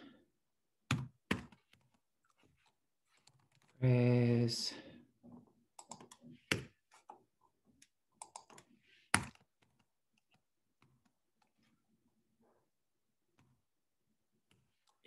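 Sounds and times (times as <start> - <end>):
typing on computer keyboard: 5.8 - 6.2, 8.2 - 8.6.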